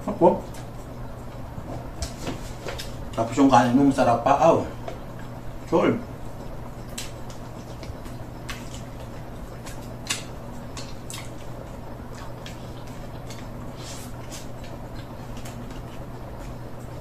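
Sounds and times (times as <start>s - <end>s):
steady low hum: 0.0s - 17.0s
person chewing food: 6.4s - 17.0s.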